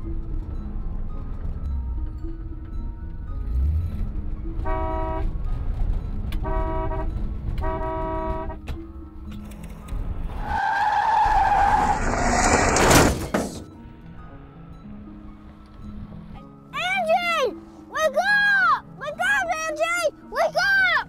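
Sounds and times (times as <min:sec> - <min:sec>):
car engine and road noise: 0:00.0 - 0:20.6
vehicle horn honking: 0:04.6 - 0:05.3, 0:06.4 - 0:08.7
tyres squealing: 0:10.4 - 0:13.8.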